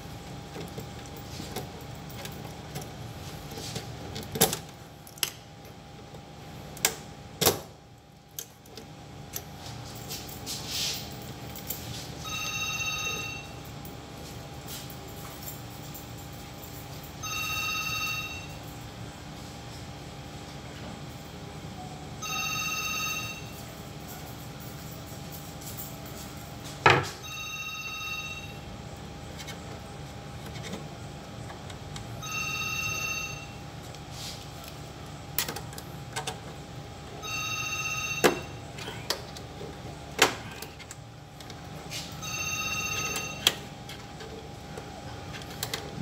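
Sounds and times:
electronic telephone ring: 12.2s - 13.6s, 17.2s - 18.6s, 22.2s - 23.6s, 27.2s - 28.7s, 32.2s - 33.7s, 37.2s - 38.7s, 42.2s - 43.7s.

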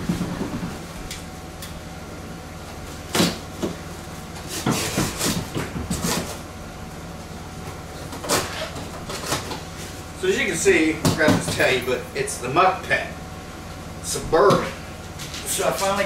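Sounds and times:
box cutter scraping cardboard: 4.4s - 6.4s, 8.1s - 9.6s.

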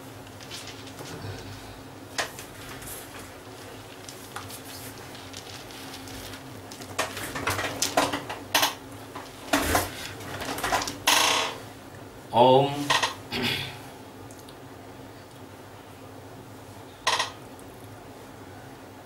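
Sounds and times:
steady low hum: 0.0s - 19.0s
cloth rustling: 2.3s - 7.8s.

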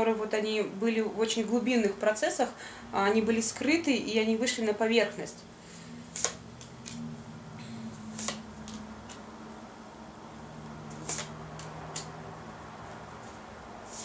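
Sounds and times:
playing cards clicking and snapping: 6.2s - 7.0s, 8.1s - 9.3s, 10.9s - 12.2s.

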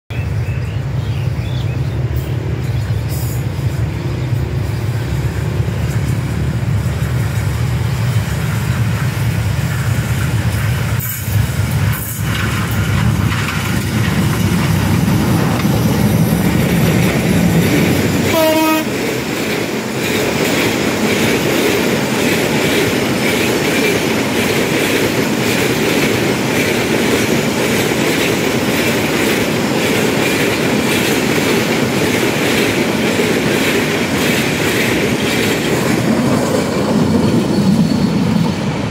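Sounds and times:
train wheels roaring: 0.2s - 38.9s
locomotive engine rumble: 0.3s - 24.5s
wheels clacking over rail joints: 2.7s - 38.9s
train horn: 18.2s - 19.0s.

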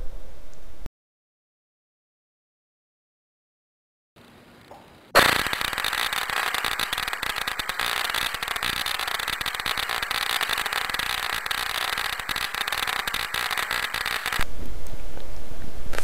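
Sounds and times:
electric spark crackling: 5.2s - 14.5s.

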